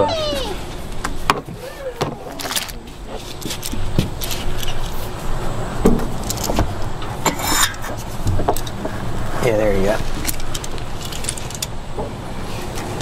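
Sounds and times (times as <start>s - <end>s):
metal tools clinking: 2.3s - 5.0s, 10.2s - 11.8s.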